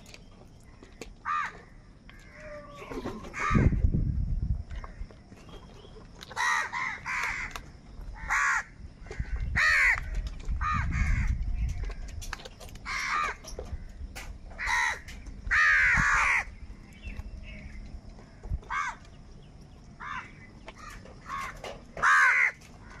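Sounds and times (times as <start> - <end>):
crows cawing: 1.2 - 3.8, 6.4 - 7.6, 8.2 - 11.4, 12.8 - 14.0, 14.6 - 16.6, 18.7 - 19.0, 20.0 - 23.0.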